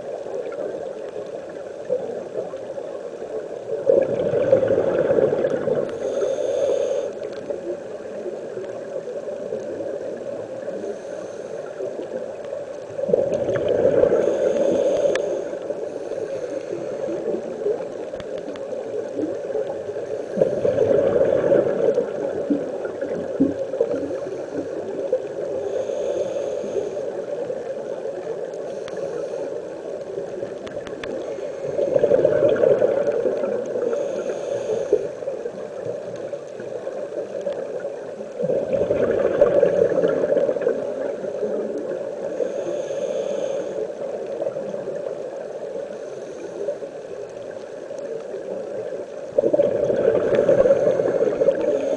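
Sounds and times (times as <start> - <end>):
underwater bubbling: 0.0 - 51.9
exhaled bubbles: 3.7 - 6.4, 12.7 - 15.2, 16.6 - 25.6, 30.3 - 34.3, 35.8 - 42.0, 49.3 - 51.9
regulator inhalation hiss: 5.8 - 7.6, 10.6 - 12.0, 14.1 - 17.8, 23.9 - 27.6, 28.5 - 29.9, 33.8 - 35.6, 42.2 - 44.7, 50.2 - 51.9.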